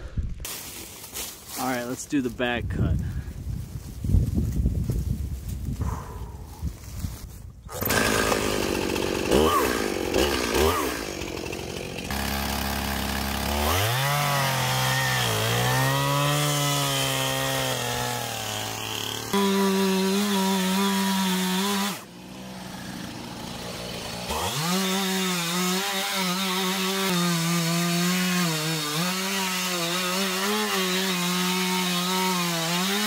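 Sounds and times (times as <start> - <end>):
chainsaw revving and cutting wood: 7.7 - 33.0.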